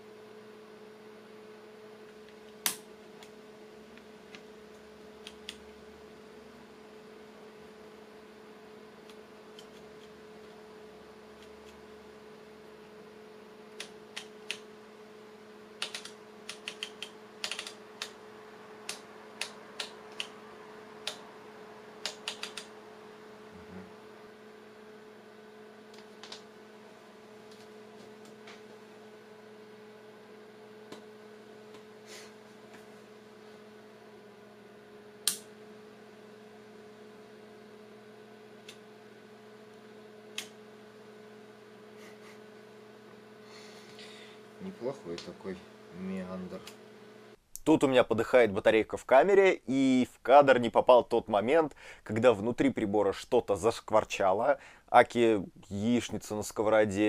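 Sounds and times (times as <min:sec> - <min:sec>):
steady hum: 0:00.0 - 0:47.5
oscilloscope switches clicking: 0:15.8 - 0:18.2, 0:18.8 - 0:20.4, 0:21.0 - 0:21.2, 0:22.0 - 0:22.7, 0:35.2 - 0:35.5.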